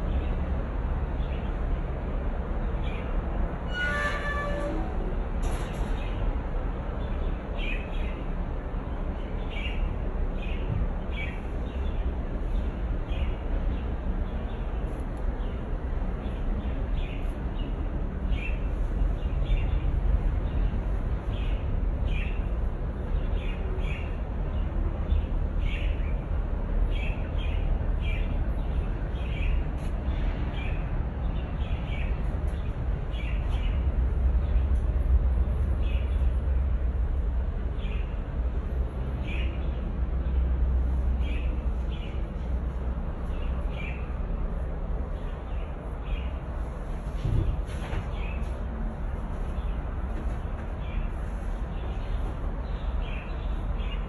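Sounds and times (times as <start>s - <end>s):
steady low rumble: 8.1s - 54.0s.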